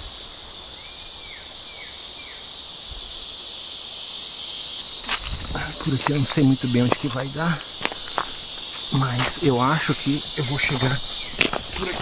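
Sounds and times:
insects chorus: 0.0 - 12.0.

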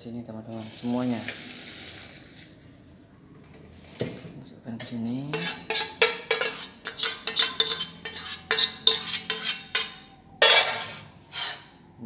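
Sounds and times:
saucepan scraping and knocking: 4.8 - 11.8.

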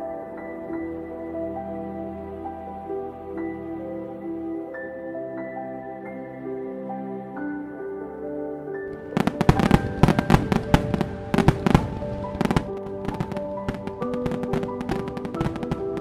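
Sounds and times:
soft music with held notes: 0.0 - 16.0
fireworks bangs and crackles: 9.0 - 16.0.

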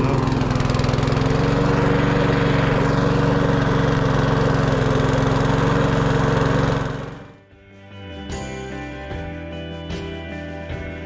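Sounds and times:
lawn mower engine running: 0.0 - 7.5.

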